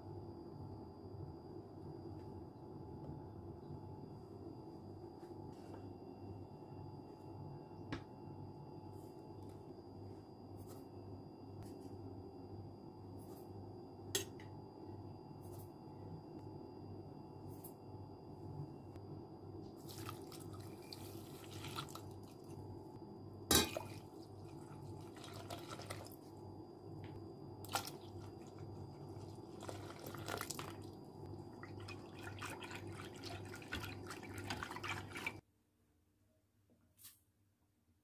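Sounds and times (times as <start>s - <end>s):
milk pouring into a metal pot: 19.8s - 22.6s, 23.6s - 26.3s, 27.7s - 31.0s, 31.6s - 35.4s.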